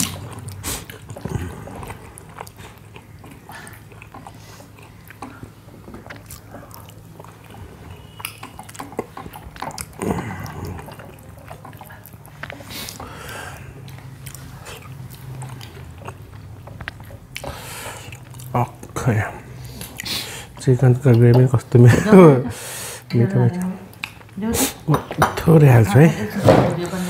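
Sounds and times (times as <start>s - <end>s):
lip smacks: 0.0s - 18.8s
chewing: 0.0s - 21.7s, 23.5s - 25.2s.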